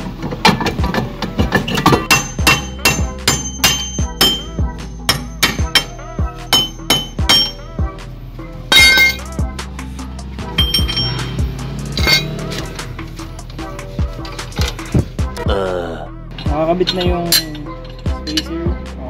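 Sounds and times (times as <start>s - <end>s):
background music: 0.0s - 19.0s
hammer striking metal drum: 0.4s - 7.6s, 8.7s - 9.4s, 10.5s - 12.5s.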